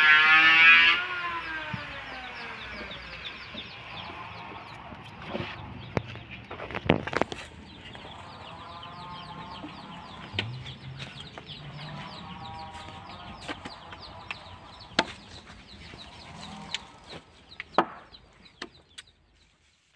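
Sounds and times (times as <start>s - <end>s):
chickens peeping: 0.3s - 19.9s.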